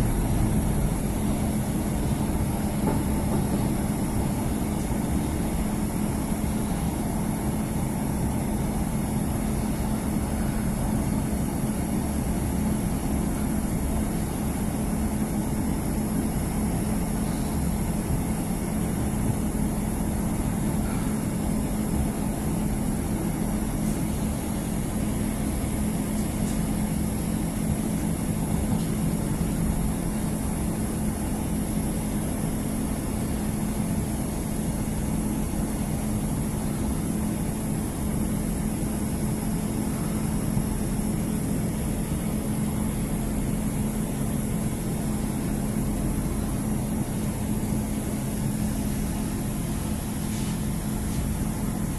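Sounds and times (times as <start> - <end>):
low hum: 0.0 - 6.2
wheels rumbling on rail: 0.0 - 6.6
diesel engine drone: 0.0 - 51.9.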